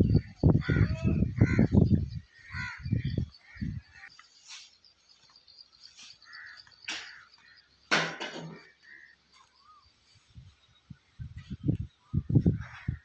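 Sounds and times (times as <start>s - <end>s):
crows cawing: 0.1s - 4.2s, 6.2s - 9.9s.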